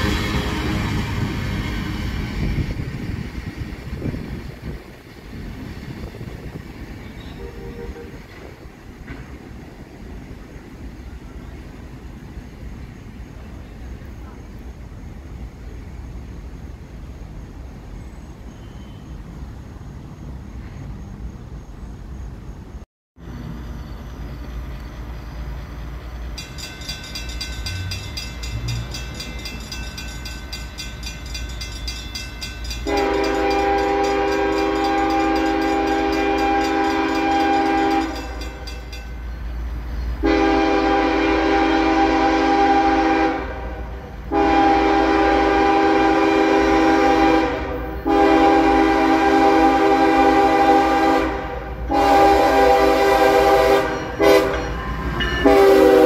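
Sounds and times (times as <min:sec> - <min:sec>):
low rumble of train: 0:00.0 - 0:56.0
locomotive air horn blasts: 0:07.2 - 0:08.3, 0:32.8 - 0:38.4, 0:40.2 - 0:54.8, 0:55.4 - 0:56.0.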